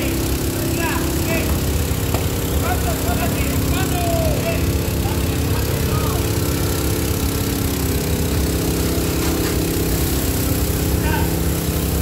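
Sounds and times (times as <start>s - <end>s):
engine droning: 0.0s - 12.0s
hose spraying: 0.0s - 12.0s.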